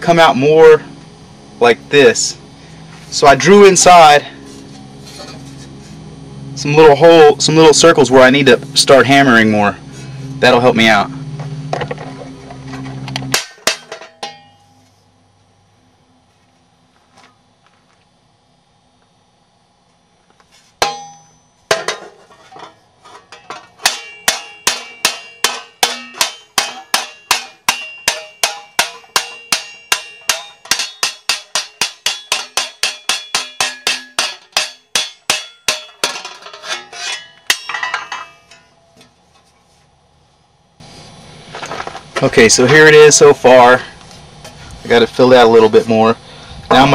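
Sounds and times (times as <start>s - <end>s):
hammer striking sheet metal: 13.3s - 14.7s, 20.8s - 38.8s.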